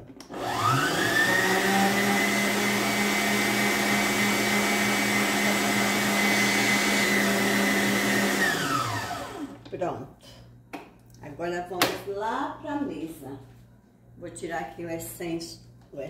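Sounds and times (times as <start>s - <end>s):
stand mixer running: 0.2s - 9.6s
motor winding down: 0.3s - 9.6s.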